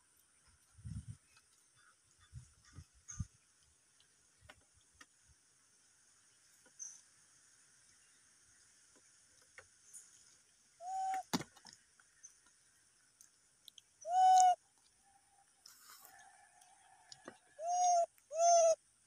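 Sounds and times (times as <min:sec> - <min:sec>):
baby macaque coo calls: 0:10.8 - 0:11.2, 0:14.0 - 0:14.6, 0:17.6 - 0:18.8.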